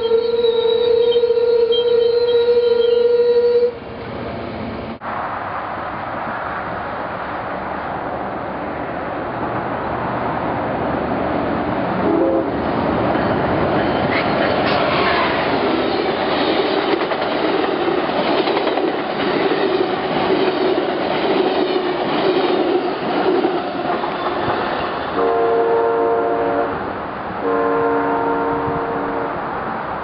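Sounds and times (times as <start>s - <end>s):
train horn blasts: 0.0s - 3.8s, 12.0s - 12.6s, 25.2s - 26.8s, 27.4s - 29.5s
train rushing past: 3.5s - 30.0s.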